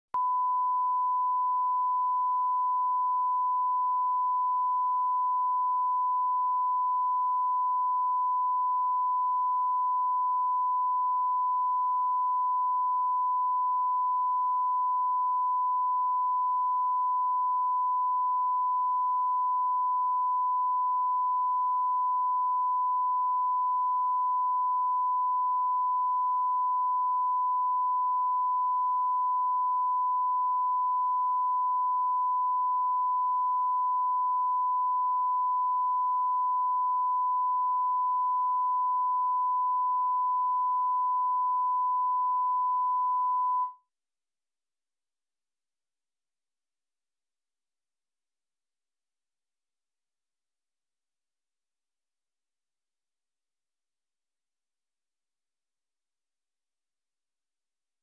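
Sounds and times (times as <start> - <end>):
sine reference tone: 0.1 - 43.9.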